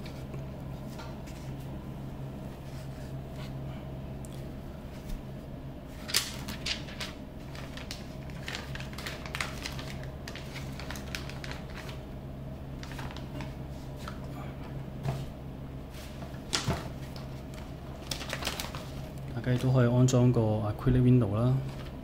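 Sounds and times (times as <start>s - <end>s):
steady low hum: 0.0s - 22.0s.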